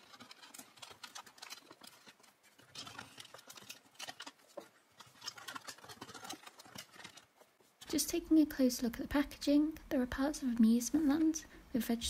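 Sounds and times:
cardboard and plastic packaging scrapes: 0.0s - 7.5s.

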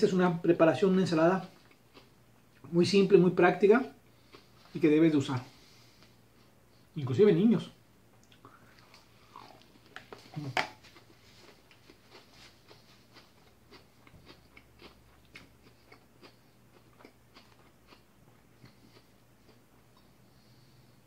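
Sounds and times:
person chewing salad: 1.5s - 2.6s, 4.1s - 4.8s, 8.2s - 20.7s.

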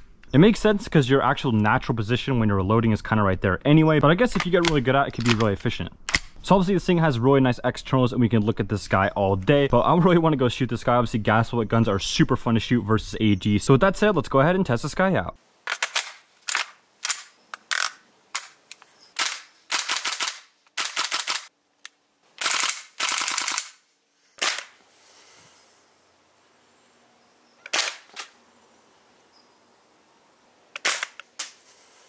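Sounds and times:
bolt cycling crack: 4.3s - 6.4s, 15.7s - 23.8s, 24.4s - 24.8s, 27.6s - 28.4s, 30.7s - 31.6s
airsoft rifle shots: 19.2s - 21.5s, 22.4s - 23.8s, 24.4s - 24.8s, 27.7s - 28.4s, 30.8s - 31.6s.

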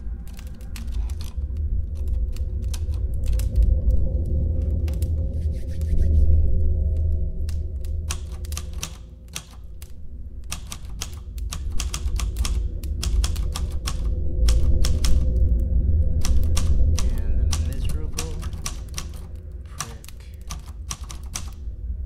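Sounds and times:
low droning music: 0.0s - 22.0s
typewriter keys clacking: 0.2s - 3.6s, 8.0s - 9.9s, 10.5s - 15.4s, 16.2s - 21.6s.

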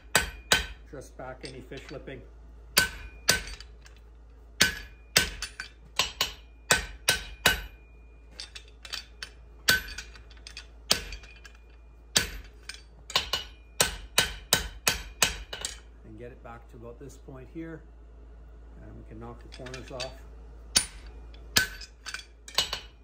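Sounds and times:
hammer blows on anvil: 0.0s - 2.2s, 2.8s - 3.7s, 4.6s - 10.2s, 10.9s - 15.9s.

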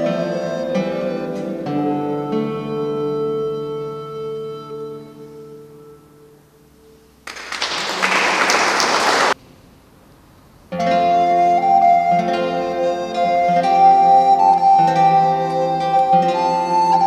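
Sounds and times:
recorder and guitar chord: 0.0s - 7.2s, 10.7s - 17.0s
audience applause: 7.2s - 9.4s.

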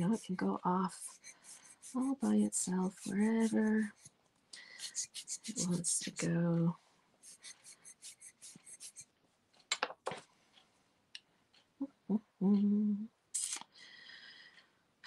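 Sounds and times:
person humming: 11.8s - 13.1s.

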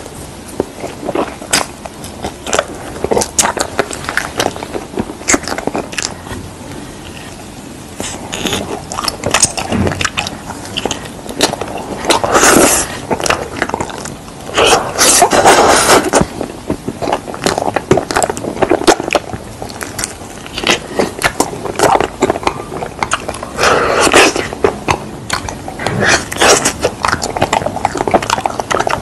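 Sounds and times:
chewing clicks: 8.0s - 29.0s.

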